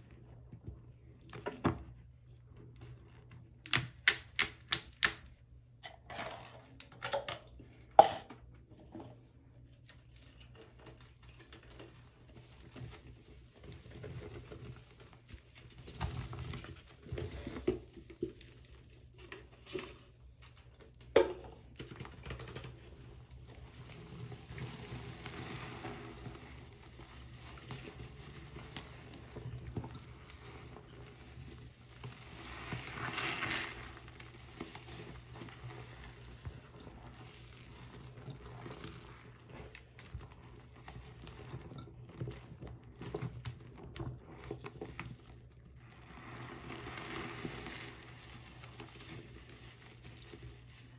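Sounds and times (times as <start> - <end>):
sponge squelching in suds: 23.0 - 50.9.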